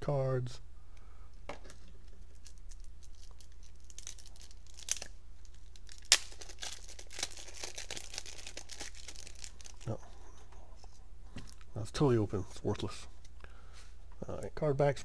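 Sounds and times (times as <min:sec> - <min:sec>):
plastic wrap crinkling: 0:01.7 - 0:10.0
plastic wrap snap: 0:02.3 - 0:09.8.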